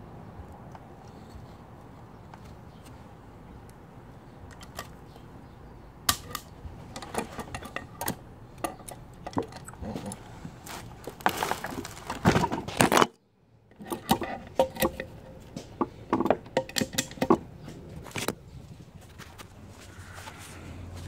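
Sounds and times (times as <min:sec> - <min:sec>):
metal tools clattering on bench: 0:06.9 - 0:10.2, 0:13.7 - 0:17.5.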